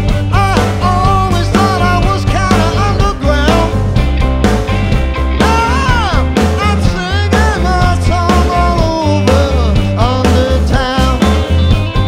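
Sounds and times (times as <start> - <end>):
rock band playing: 0.0 - 12.0
man singing into microphone: 0.3 - 3.8, 5.4 - 11.4.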